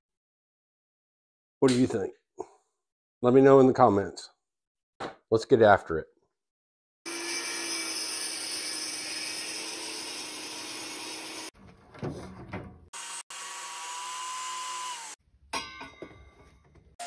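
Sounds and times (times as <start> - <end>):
table saw cutting wood: 7.1 - 11.6, 12.9 - 15.2
wood knocking and scraping: 11.6 - 12.9
saw motor whine: 13.0 - 15.2.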